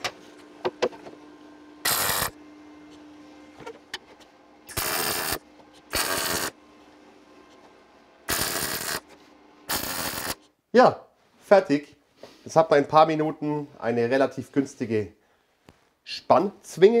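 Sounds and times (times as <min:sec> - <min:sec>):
welder arc crackling: 0:01.9 - 0:02.4, 0:04.7 - 0:06.6, 0:08.3 - 0:09.0, 0:09.7 - 0:10.4.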